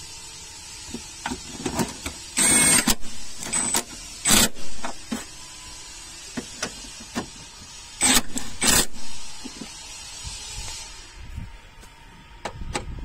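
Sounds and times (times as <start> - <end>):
cordless impact wrench bursts: 1.4 - 5.4, 8.0 - 9.6.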